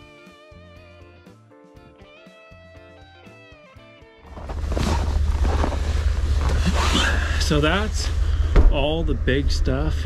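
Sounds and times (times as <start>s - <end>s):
knocks and rustles: 4.3s - 7.4s.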